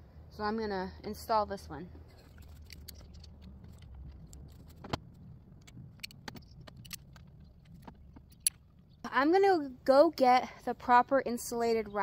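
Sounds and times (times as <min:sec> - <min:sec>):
faint low rumble: 0:00.0 - 0:11.3
small clicks and knocks: 0:02.1 - 0:08.8.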